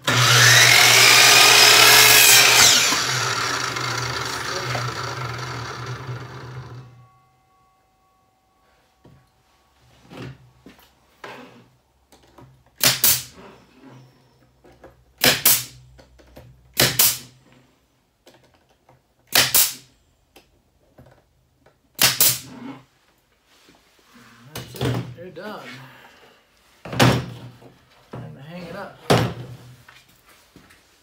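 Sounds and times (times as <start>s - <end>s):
nail gun shots into wood: 12.8s - 13.3s, 15.2s - 15.8s, 16.8s - 17.3s, 19.3s - 19.9s, 22.0s - 22.5s.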